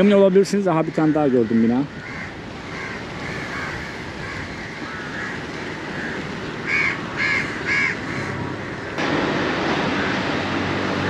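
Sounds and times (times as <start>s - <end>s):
street background noise: 0.0s - 11.0s
crows cawing: 0.6s - 9.0s
close crow cawing loudly: 1.0s - 9.0s.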